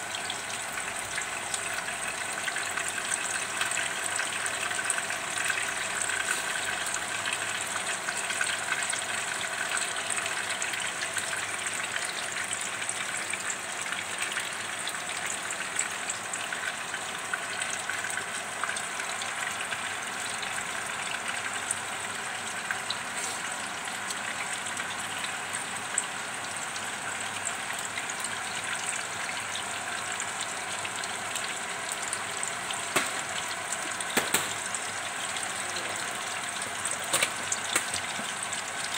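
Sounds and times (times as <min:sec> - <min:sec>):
hot oil sizzling: 0:00.0 - 0:38.9
sharp pops of frying fish: 0:32.8 - 0:34.9, 0:36.9 - 0:38.4.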